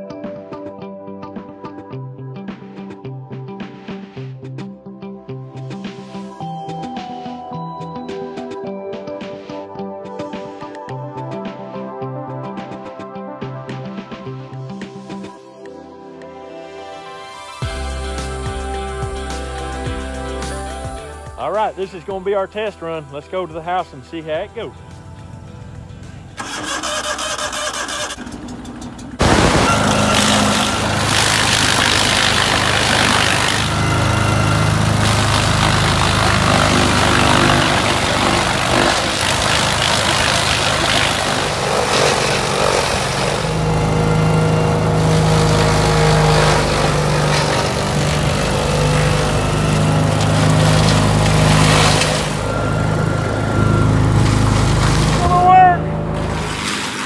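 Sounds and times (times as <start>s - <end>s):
wood chipper shredding stalks: 25.6s - 57.0s.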